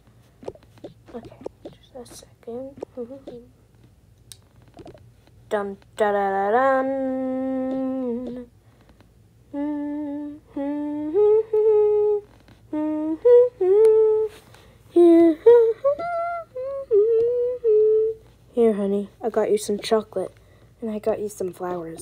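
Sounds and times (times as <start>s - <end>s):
person humming high tune: 0.4s - 3.5s, 6.7s - 8.5s, 9.5s - 14.4s, 15.0s - 18.2s.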